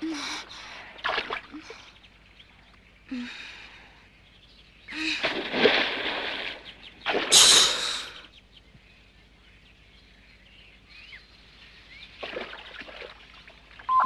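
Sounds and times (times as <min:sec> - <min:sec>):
faint bird chirps: 0:06.4 - 0:14.0.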